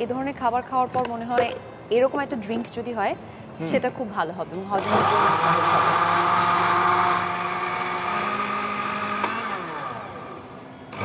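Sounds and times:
electric blender whirring: 0:04.8 - 0:11.0.

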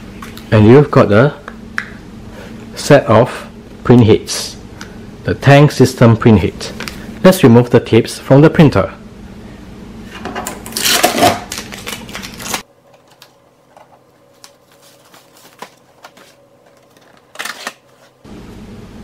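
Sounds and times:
tape being peeled off: 0:10.6 - 0:12.6, 0:14.4 - 0:18.1.

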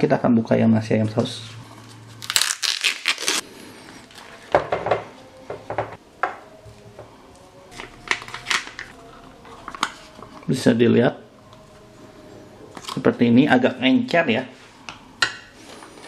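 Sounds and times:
plastic film lid peeling: 0:07.7 - 0:09.0.

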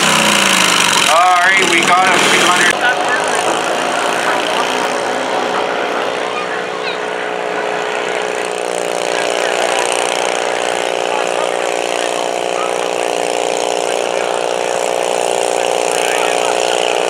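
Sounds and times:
tractor engine running under load: 0:00.0 - 0:17.0.

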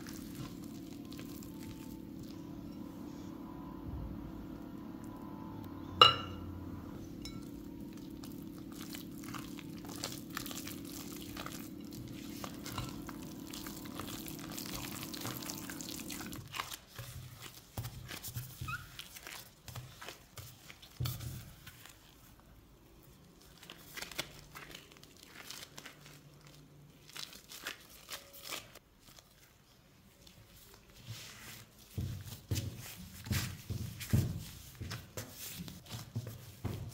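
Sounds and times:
dough squishes and thuds: 0:00.0 - 0:02.4, 0:07.2 - 0:22.4, 0:23.4 - 0:36.9
plastic gloves crinkling: 0:00.0 - 0:02.4, 0:07.2 - 0:36.9
low steady hum: 0:00.0 - 0:16.6
spatula scraping dough in glass bowl: 0:07.2 - 0:21.4.

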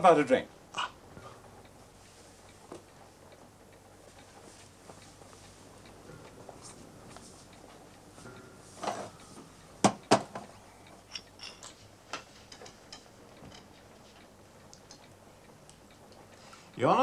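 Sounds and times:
glasses and bottles clinking: 0:11.1 - 0:11.8.

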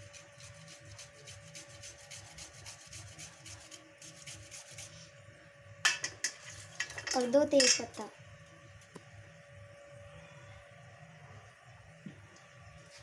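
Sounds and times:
ginger grated on hand grater: 0:00.0 - 0:04.9.

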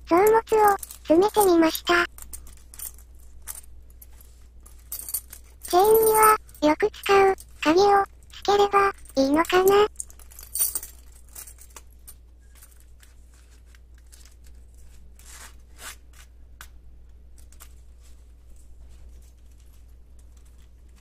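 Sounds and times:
keys clicking and rustling: 0:00.1 - 0:07.7, 0:08.7 - 0:13.2.

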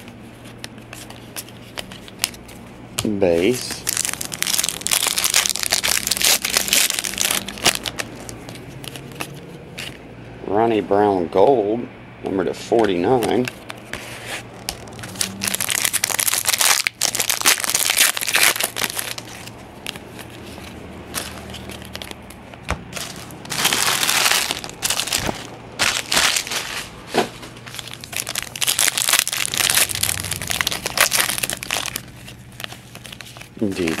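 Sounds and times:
foil wrappers crinkling: 0:00.4 - 0:09.5, 0:12.8 - 0:26.9, 0:27.6 - 0:34.0.

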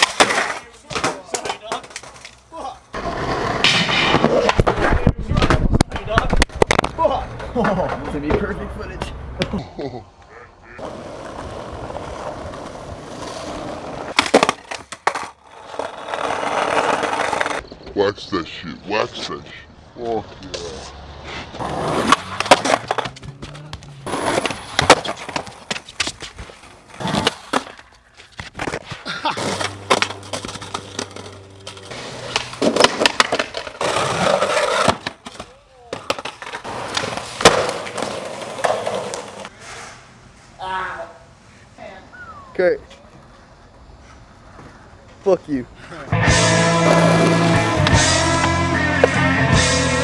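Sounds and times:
skateboard wheels rolling on pavement: 0:00.0 - 0:09.6, 0:10.6 - 0:18.0, 0:18.9 - 0:41.5, 0:42.8 - 0:50.0
skateboard clacks: 0:22.0 - 0:39.5.

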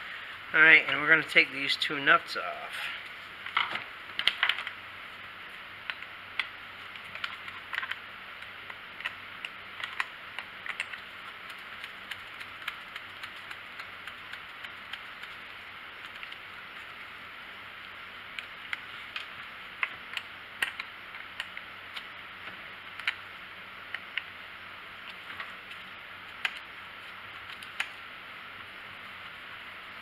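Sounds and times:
faint steady hiss: 0:00.0 - 0:30.0.

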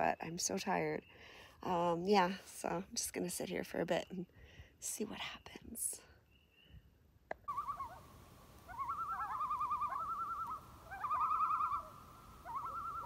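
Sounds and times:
loon tremolo calls: 0:07.5 - 0:13.0.

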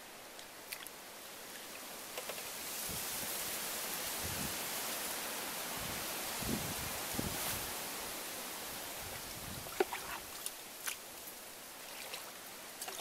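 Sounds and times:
steady outdoor hiss: 0:00.0 - 0:13.0
water splashing in a bowl: 0:09.6 - 0:11.0, 0:11.8 - 0:13.0.

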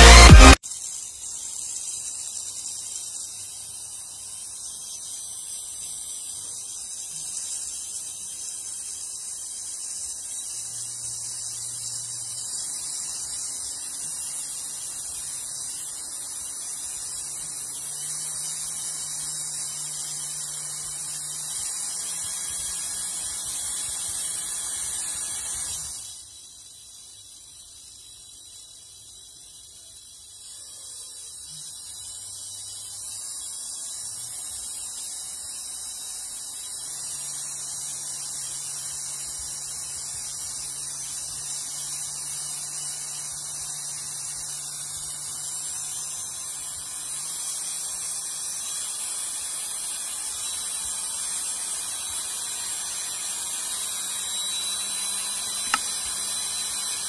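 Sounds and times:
small electric motor humming: 0:00.0 - 0:57.0
sharp tick: 0:55.7 - 0:55.9.

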